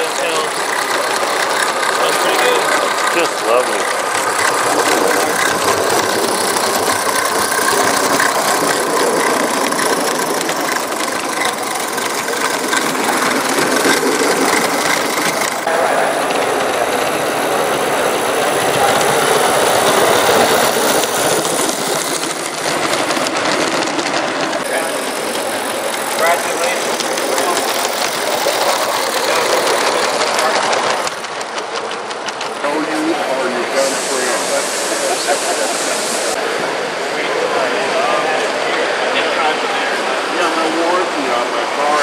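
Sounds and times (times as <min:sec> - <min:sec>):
wagon wheels clicking on rails: 0:00.0 - 0:34.4
model locomotive clattering: 0:00.0 - 0:36.5
hiss of steam: 0:33.6 - 0:36.4.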